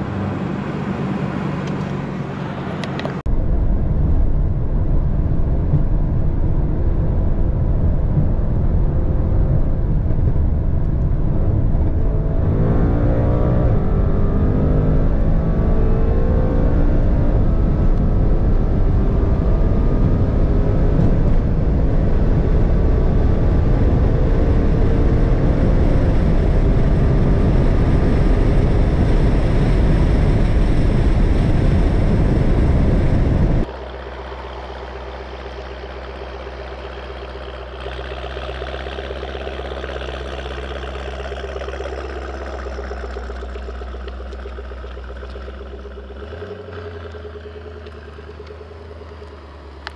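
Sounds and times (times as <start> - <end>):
car engine at full throttle: 0.0 - 49.9
wind and road roar: 0.0 - 49.9.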